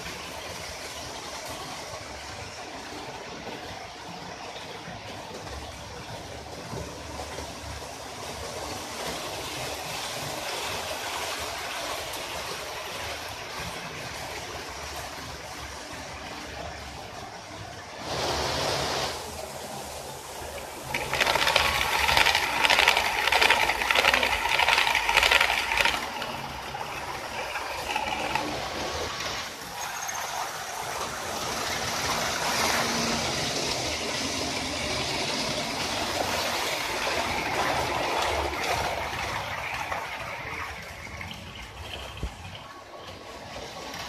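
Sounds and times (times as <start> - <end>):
model train wheels rattling over rails: 20.4 - 44.0.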